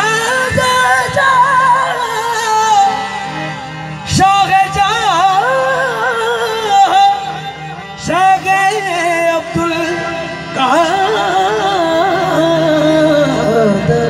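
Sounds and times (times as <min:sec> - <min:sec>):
harmonium chords: 0:00.0 - 0:14.0
men singing: 0:08.0 - 0:14.0.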